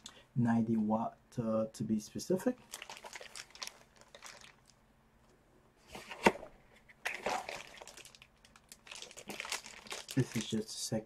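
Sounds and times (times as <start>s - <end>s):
plastic packaging crinkling: 2.6s - 4.8s, 6.0s - 10.7s.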